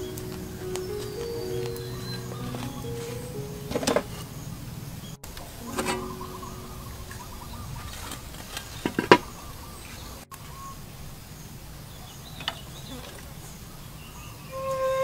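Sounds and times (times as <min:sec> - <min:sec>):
flute music: 0:00.0 - 0:08.2, 0:14.5 - 0:15.0
faint steady background noise: 0:00.0 - 0:15.0.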